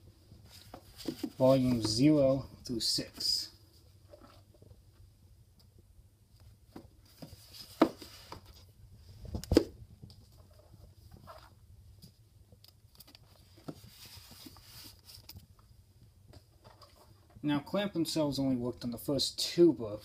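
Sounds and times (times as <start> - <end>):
books rustling and clicking: 0.4 - 2.0, 6.7 - 8.7.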